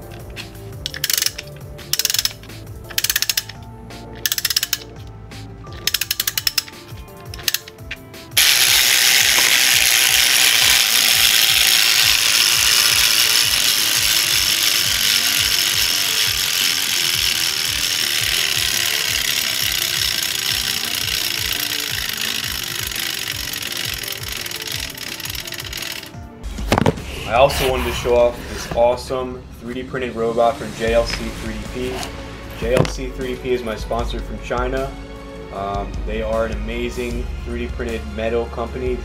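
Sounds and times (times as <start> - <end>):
gear train chattering: 0.0 - 3.6, 4.2 - 5.0, 5.7 - 26.2
ratchet pawl clicking: 0.0 - 26.2.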